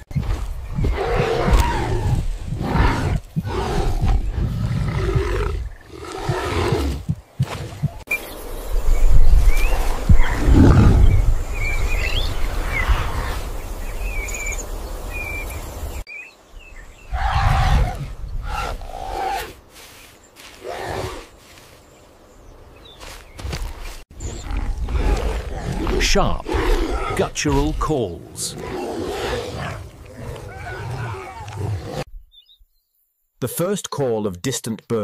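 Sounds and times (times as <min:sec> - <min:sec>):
animal roars and guttural calls: 0:00.0 - 0:08.0, 0:09.4 - 0:14.1, 0:17.0 - 0:19.6, 0:20.4 - 0:21.6, 0:23.6 - 0:32.3
birds chirping: 0:00.0 - 0:35.0.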